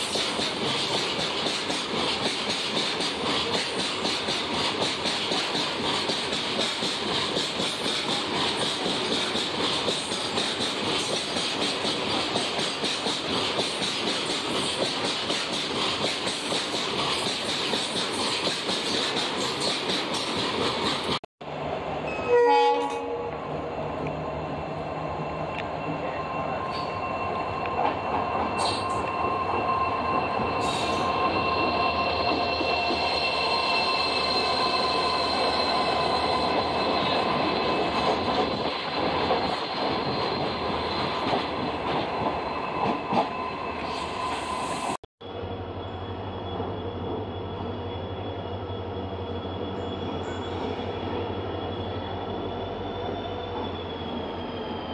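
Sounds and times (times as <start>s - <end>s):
diesel locomotive passing: 0.0s - 54.9s
train horn: 22.1s - 23.5s.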